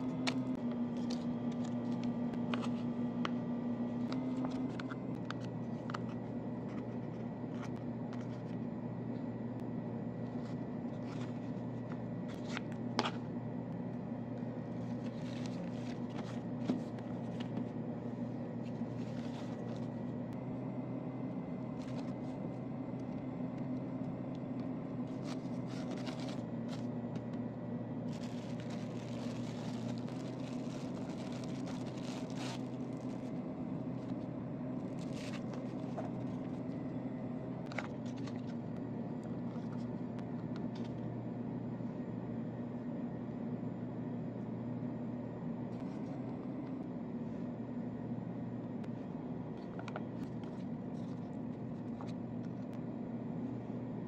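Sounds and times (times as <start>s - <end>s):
steady low hum: 0.0s - 54.0s
plastic bag crinkling: 28.1s - 33.4s.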